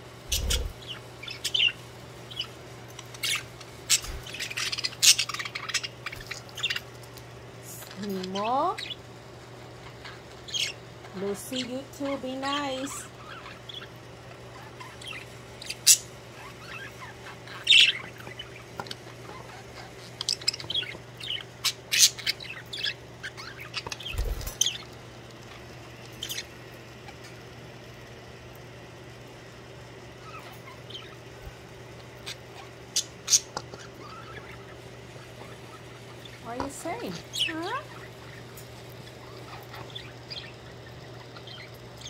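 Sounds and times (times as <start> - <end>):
steady low hum: 0.0 - 42.0
budgerigars chirping: 0.3 - 6.9, 10.0 - 10.8, 12.5 - 24.9, 26.2 - 26.5, 30.2 - 31.2, 32.2 - 42.0.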